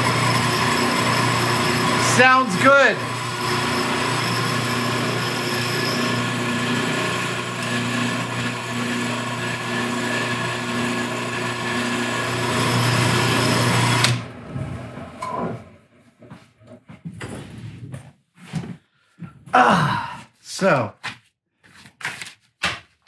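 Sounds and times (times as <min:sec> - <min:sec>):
drill press humming: 0:00.0 - 0:15.7.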